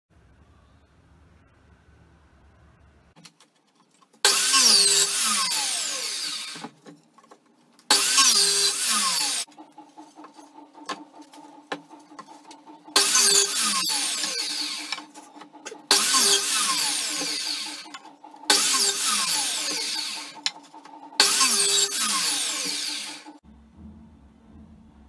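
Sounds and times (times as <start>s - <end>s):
faint low hum: 0.1s - 3.2s, 23.4s - 25.0s
miter saw cutting wood: 4.2s - 6.7s, 7.9s - 23.4s.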